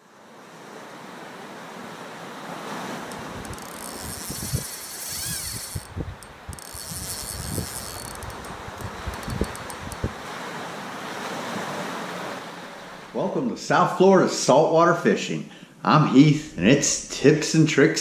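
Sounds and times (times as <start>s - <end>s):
wind and sea rushing: 0.0s - 14.1s
wind buffeting microphone: 3.1s - 10.4s.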